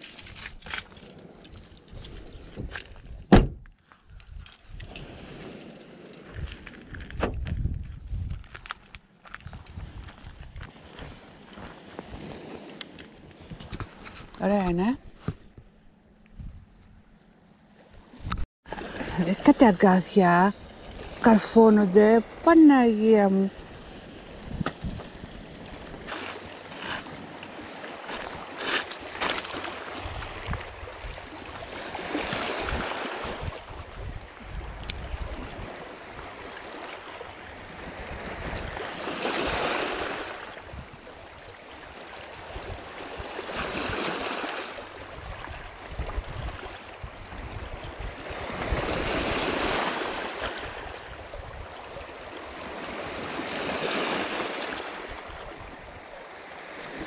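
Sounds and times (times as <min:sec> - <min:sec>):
waves washing onto pebble shore: 0:35.1 - 0:40.6.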